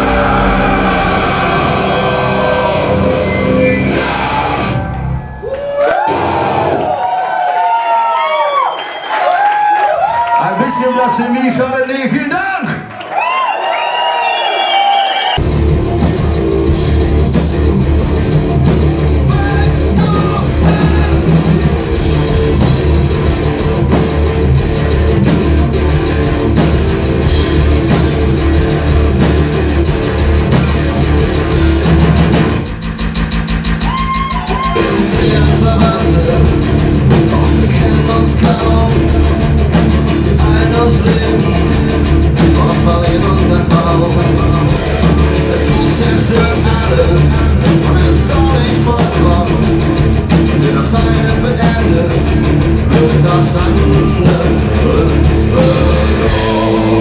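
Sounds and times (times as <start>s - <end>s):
live rock band playing: 0.0s - 6.9s, 15.4s - 57.0s.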